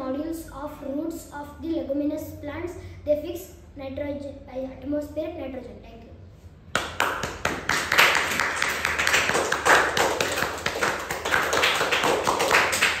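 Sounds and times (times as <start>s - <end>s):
group of people clapping: 6.7s - 13.0s.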